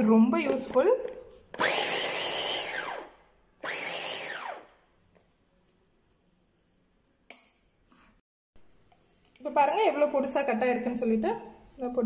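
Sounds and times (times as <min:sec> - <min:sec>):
electric chopper motor whine: 0:01.6 - 0:04.7.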